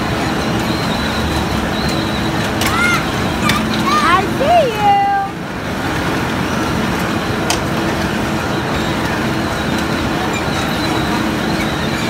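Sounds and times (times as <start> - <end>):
carnival ride rumbling: 0.0 - 12.0.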